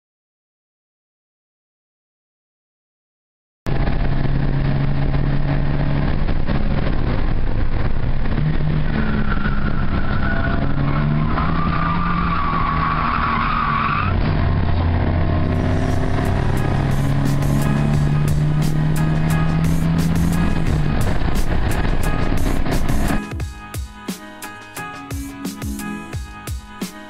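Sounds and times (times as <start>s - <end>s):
car engine revving: 3.7s - 23.3s.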